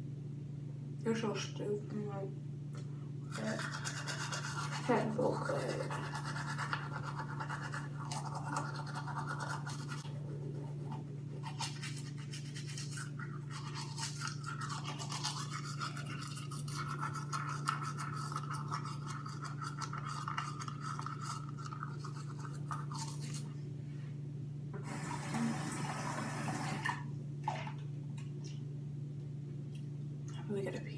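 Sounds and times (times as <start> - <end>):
steady low hum: 0.0 - 30.9
toothbrush scrubbing teeth: 3.3 - 23.6.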